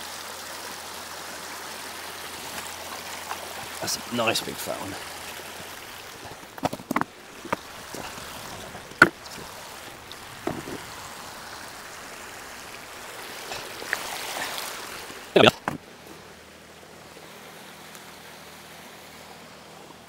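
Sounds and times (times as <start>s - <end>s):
stream running: 0.0s - 20.0s
boots crunching on stones: 6.2s - 10.9s
stones knocking together: 6.2s - 10.9s, 15.4s - 15.8s.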